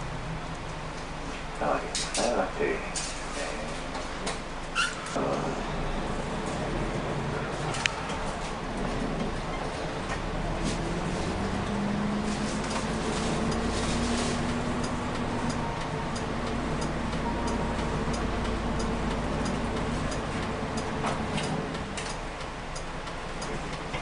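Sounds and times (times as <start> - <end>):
bus engine running: 0.0 - 24.0
turn-signal relay ticking: 14.4 - 24.0.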